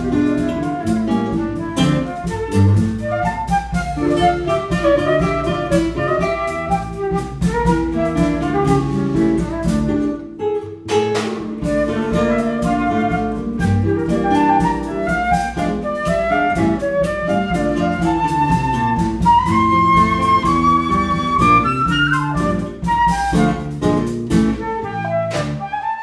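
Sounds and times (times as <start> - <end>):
electric bass: 0.0 - 10.4, 16.6 - 25.6
classical guitar: 0.0 - 26.0
drum kit: 0.0 - 26.0
flute melody: 0.0 - 26.0.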